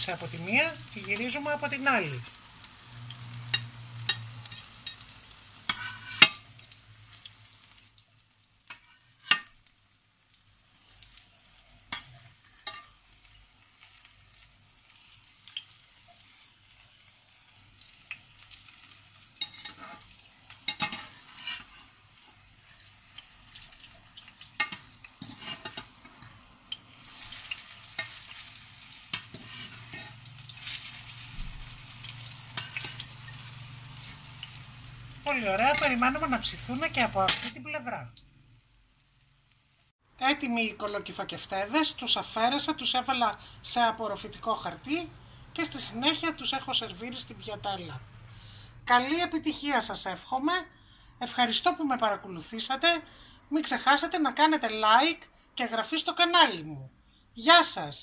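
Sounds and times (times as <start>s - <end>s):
fritters sizzling in oil: 0.0s - 40.0s
metal utensils scraping pan: 3.5s - 6.5s, 8.7s - 9.6s, 11.9s - 13.0s, 19.4s - 22.0s, 24.6s - 26.4s, 29.1s - 31.0s, 32.3s - 34.3s, 35.3s - 37.6s.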